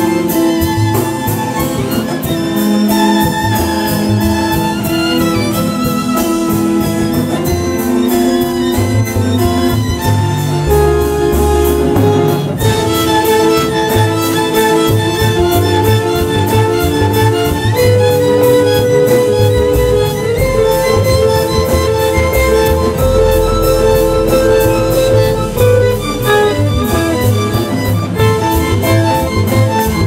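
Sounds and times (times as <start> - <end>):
bowed violins and cello: 0.0 - 30.0
double bass line: 0.0 - 30.0
electric guitar: 0.0 - 30.0
steady rhythmic pulse: 0.0 - 30.0.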